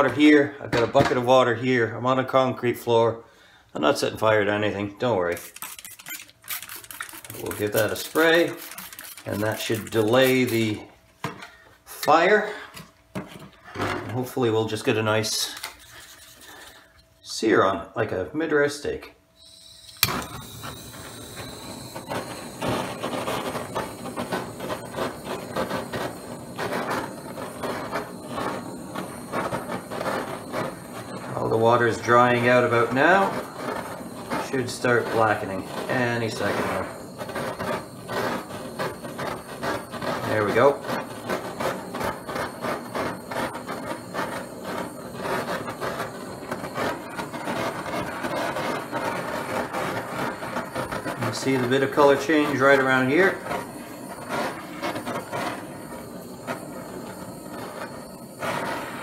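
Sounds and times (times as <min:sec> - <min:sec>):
gas torch hissing flame: 0:05.3 - 0:10.8, 0:19.4 - 0:59.0.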